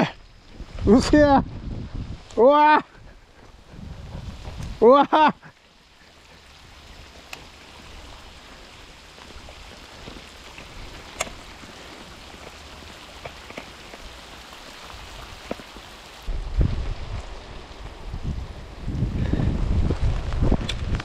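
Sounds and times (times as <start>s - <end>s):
heavy rain hissing: 0.0s - 21.0s
raindrops ticking close by: 0.0s - 21.0s.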